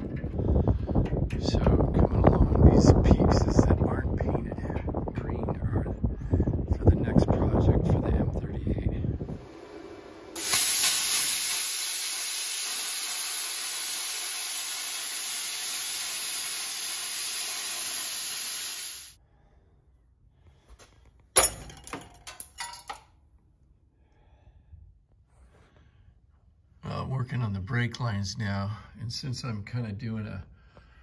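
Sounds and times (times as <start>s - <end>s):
plasma cutter hissing: 10.3s - 19.2s.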